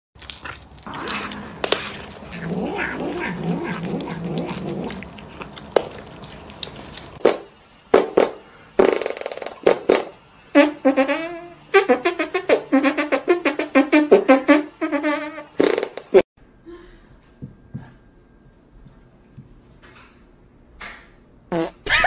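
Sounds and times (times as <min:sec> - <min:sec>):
cat yowling: 0:00.9 - 0:05.0.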